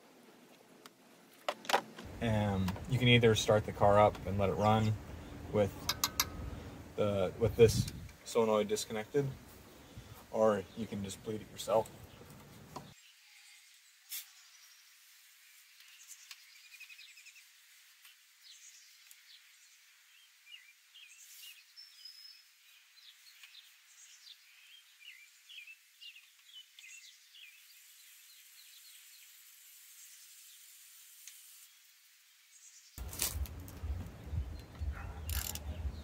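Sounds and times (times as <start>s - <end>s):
low hiss: 0.0s - 36.0s.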